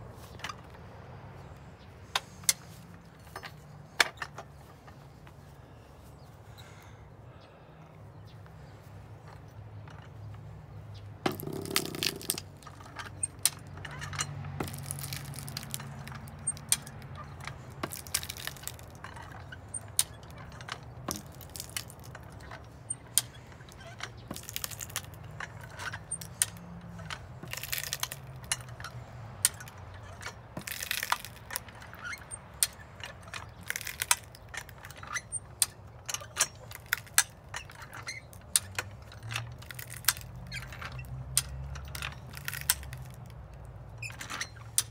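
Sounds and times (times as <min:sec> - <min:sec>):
farm jack metal clacks: 0:01.6 - 0:05.4, 0:09.2 - 0:44.9
wood cracking and splitting: 0:11.2 - 0:19.1, 0:19.7 - 0:22.5, 0:24.1 - 0:26.7, 0:27.4 - 0:28.6, 0:30.6 - 0:31.7, 0:33.4 - 0:35.0, 0:36.6 - 0:37.4, 0:39.5 - 0:43.4.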